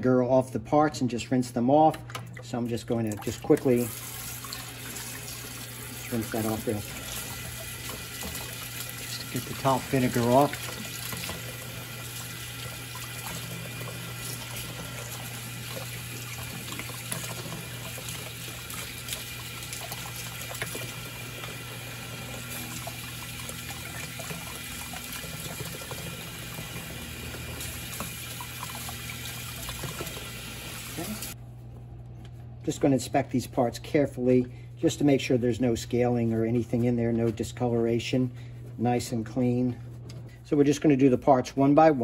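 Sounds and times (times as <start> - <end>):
water splashing into plastic tub: 1.9 - 21.6
faucet running: 2.1 - 31.4.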